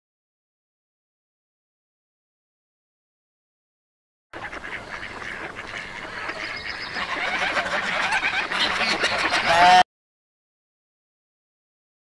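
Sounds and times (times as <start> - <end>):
gulls calling: 4.4 - 9.8.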